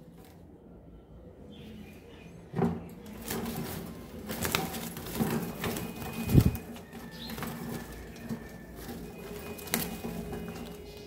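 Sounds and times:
wings flapping: 0:03.0 - 0:11.0
wire birdcage clinking and rattling: 0:03.1 - 0:11.0.

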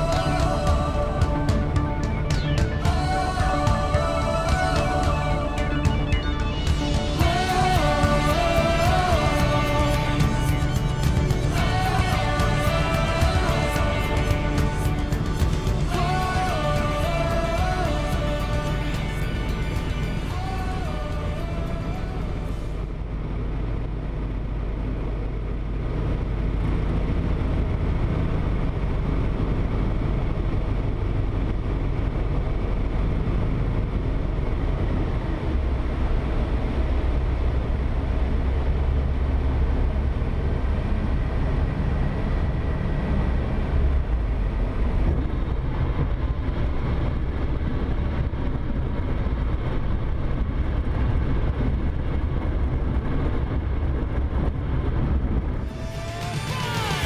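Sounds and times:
propeller aircraft engine drone: 0:00.0 - 0:57.0
airflow noise: 0:52.8 - 0:57.0.

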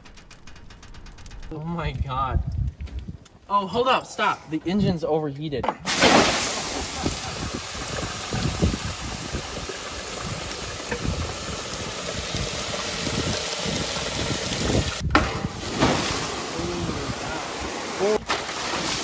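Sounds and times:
wind gusting on microphone: 0:00.0 - 0:03.5, 0:06.3 - 0:18.3
steam hissing: 0:05.9 - 0:15.0, 0:15.6 - 0:19.0
water splashing on metal: 0:05.9 - 0:19.0.

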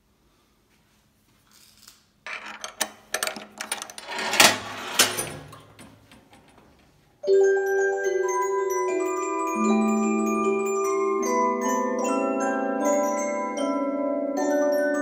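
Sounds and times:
clicking and rattling knocks: 0:02.3 - 0:07.0
music box bell-like notes: 0:07.2 - 0:15.0.

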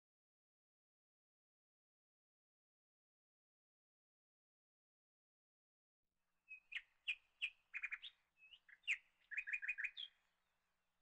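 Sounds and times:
small bird chirping: 0:06.5 - 0:10.2.

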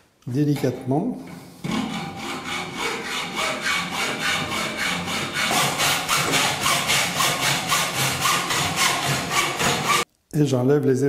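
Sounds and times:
hacksaw cutting metal: 0:01.6 - 0:10.0.

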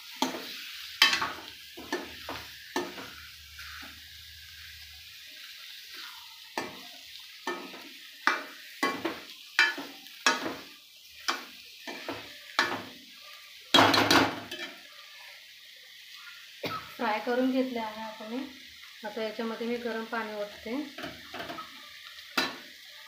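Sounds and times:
fish sizzling: 0:00.0 - 0:23.0
spoon scraping metal pan: 0:00.1 - 0:04.0.

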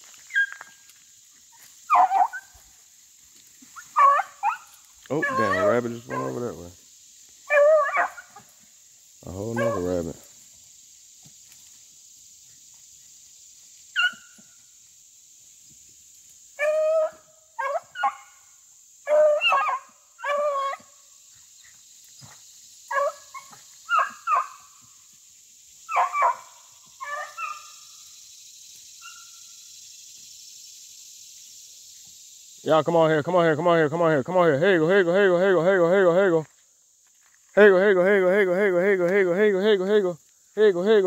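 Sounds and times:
dogs barking: 0:01.9 - 0:02.5, 0:03.8 - 0:06.5, 0:07.5 - 0:08.5, 0:09.5 - 0:10.0, 0:16.6 - 0:18.3, 0:19.1 - 0:20.9, 0:22.9 - 0:24.6, 0:25.9 - 0:27.7.

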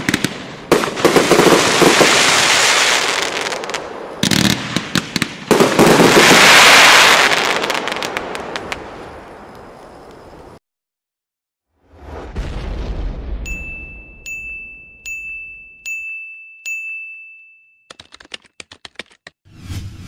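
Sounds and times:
firework crackling: 0:00.0 - 0:10.2.

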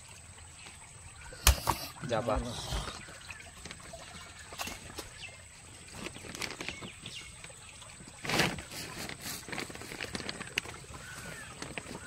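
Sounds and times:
wet fish knocking and rustling: 0:08.2 - 0:12.0.

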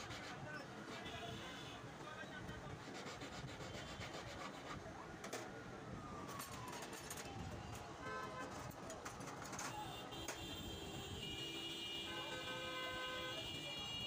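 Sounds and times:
street traffic: 0:00.0 - 0:14.0
hand file rasping on metal: 0:02.8 - 0:04.8
vehicle horn: 0:09.8 - 0:14.0.

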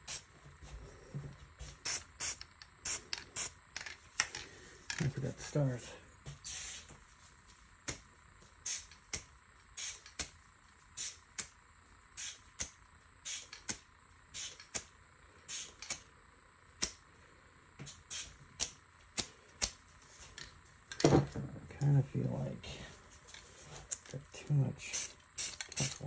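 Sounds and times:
spray paint can hissing: 0:00.0 - 0:00.3, 0:01.8 - 0:03.6, 0:06.5 - 0:06.9, 0:08.6 - 0:09.1, 0:09.8 - 0:10.3, 0:11.0 - 0:11.5, 0:12.2 - 0:14.9, 0:15.5 - 0:16.0, 0:17.9 - 0:18.4, 0:24.8 - 0:26.0.

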